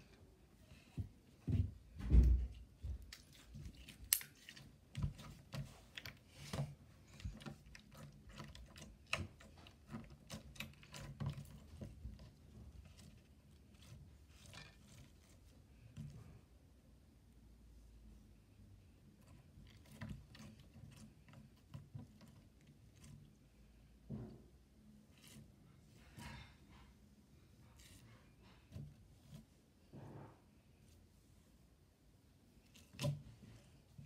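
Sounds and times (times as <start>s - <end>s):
dull thump: 1.0s - 3.0s.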